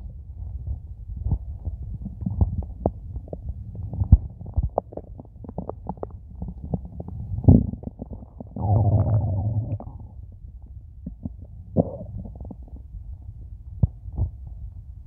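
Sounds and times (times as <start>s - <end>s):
stomach rumbling and gurgling: 0.0s - 15.0s
stomach pops and clicks: 1.2s - 10.0s, 11.0s - 12.9s, 13.7s - 14.6s.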